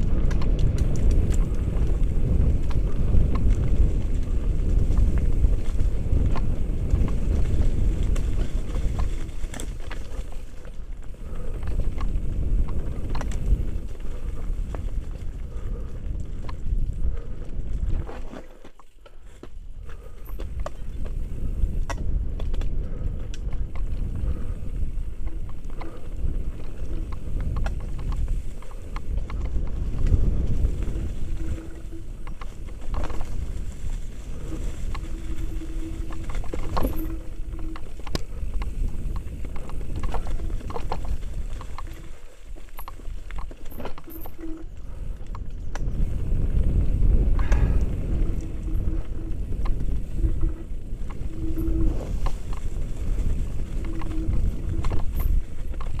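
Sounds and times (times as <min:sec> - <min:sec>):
wind on microphone: 0:00.0 - 0:18.4, 0:19.7 - 0:56.0
mountain bike rattling: 0:00.0 - 0:56.0
tyre noise: 0:17.2 - 0:44.8.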